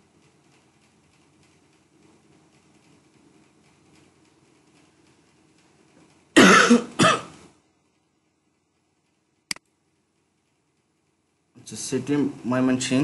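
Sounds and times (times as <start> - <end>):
man coughing: 6.4 - 7.3.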